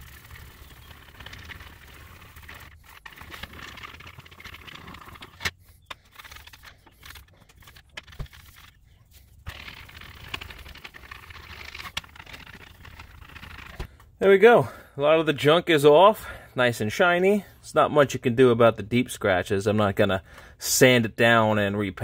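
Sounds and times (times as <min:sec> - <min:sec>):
polishing pad scrubbing plastic: 0:00.0 - 0:13.9.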